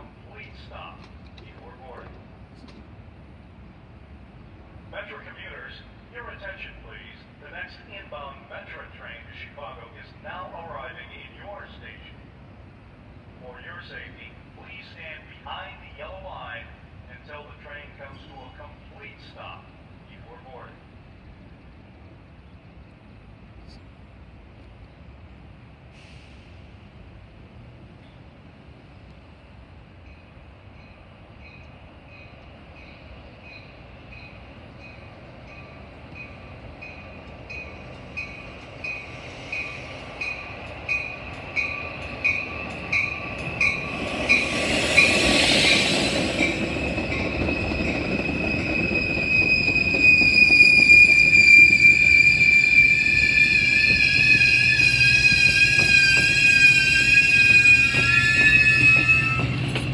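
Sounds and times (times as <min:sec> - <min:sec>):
train rushing past: 0:29.4 - 0:59.9
train bell ringing: 0:30.1 - 0:59.8
train wheels squealing: 0:30.1 - 0:59.9.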